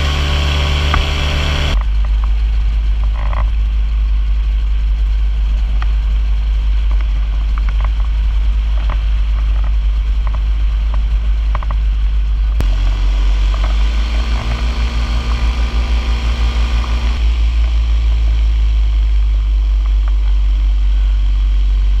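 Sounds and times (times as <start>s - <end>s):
paramotor engine running: 0.0s - 22.0s.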